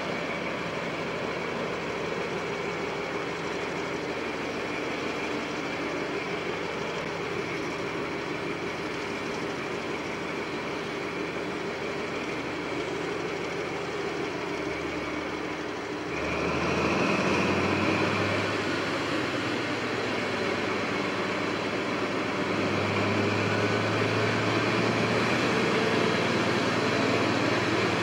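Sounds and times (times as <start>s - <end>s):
train power car running: 0.0s - 28.0s.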